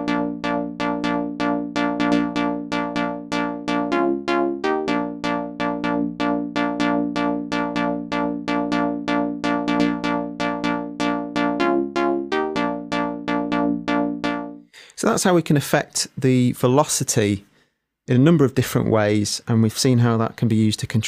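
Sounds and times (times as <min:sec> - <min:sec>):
synth plucked note pattern: 0:00.0 - 0:14.7.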